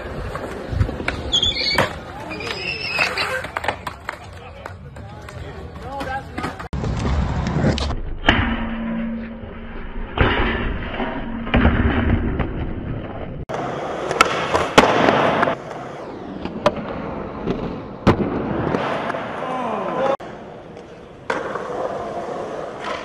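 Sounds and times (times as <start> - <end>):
skateboard clacks: 0.0 - 7.1
skateboard wheels rolling on concrete: 0.0 - 8.0, 12.9 - 23.0.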